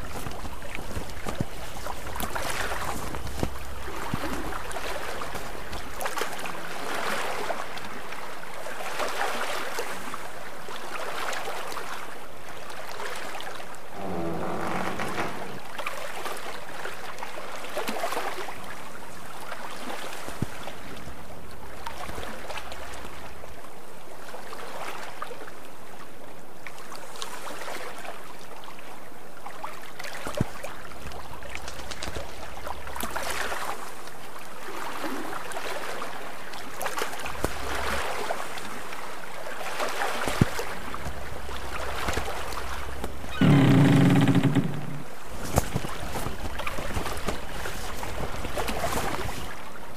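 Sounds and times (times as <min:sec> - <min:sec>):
water rushing along boat hull: 0:00.0 - 0:49.9
loud low-pitched tone: 0:13.9 - 0:15.9.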